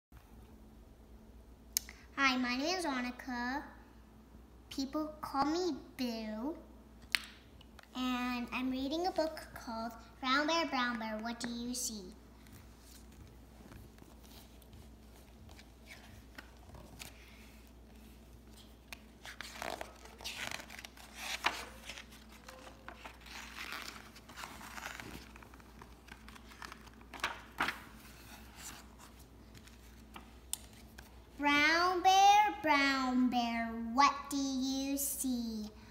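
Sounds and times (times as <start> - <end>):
book pages rustling: 10.8 - 31.4.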